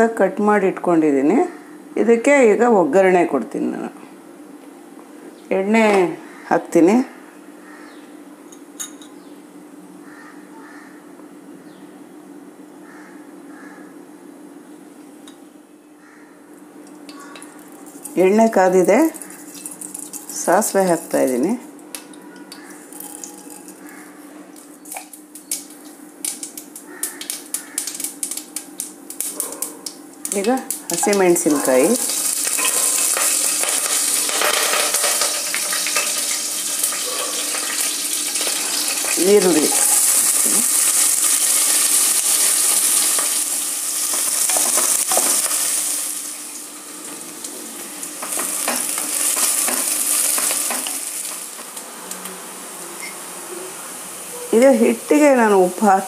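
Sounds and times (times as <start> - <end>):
seeds sizzling in hot oil: 17.1 - 21.4, 22.5 - 24.0, 24.8 - 52.5
sharp popping of seeds: 24.6 - 36.8.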